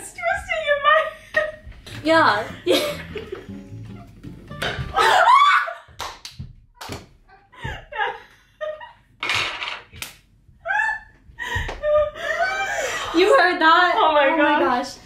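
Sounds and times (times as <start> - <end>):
women laughing: 2.4 - 3.6, 4.9 - 5.9, 7.3 - 9.0, 10.6 - 13.6
women shrieking: 4.9 - 5.9
sharp slaps: 10.0 - 10.3.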